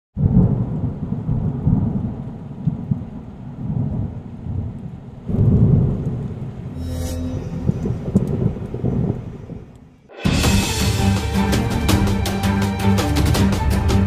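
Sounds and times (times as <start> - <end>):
thunder rumbling: 0.2 - 10.1.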